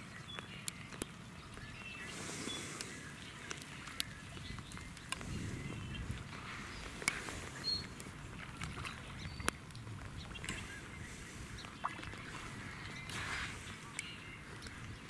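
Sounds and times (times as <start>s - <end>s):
fish splashing in water: 2.0s - 15.0s
low rumble: 4.5s - 11.6s.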